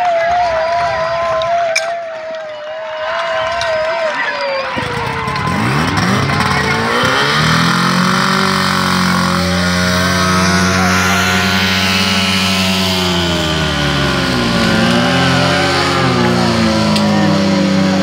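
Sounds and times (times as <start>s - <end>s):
motor pump engine revving: 4.8s - 18.0s.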